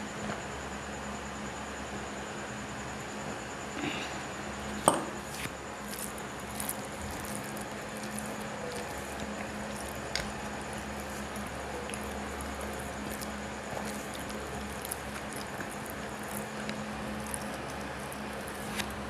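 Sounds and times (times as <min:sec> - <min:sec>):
steady low hum: 0:00.0 - 0:19.0
fingers squishing rice: 0:04.7 - 0:19.0.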